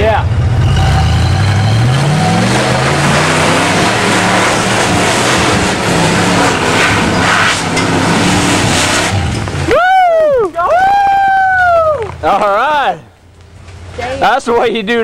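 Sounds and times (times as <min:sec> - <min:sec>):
buggy engine revving: 0:00.0 - 0:10.0
tyres spraying dirt and stones: 0:02.0 - 0:09.7.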